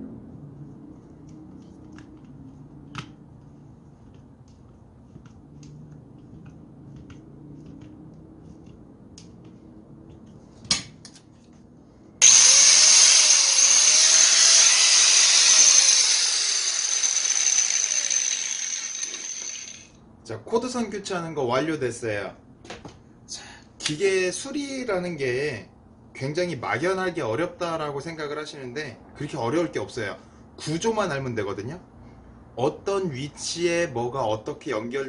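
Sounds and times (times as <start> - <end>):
electric hand grinder whining: 12.2 - 19.9.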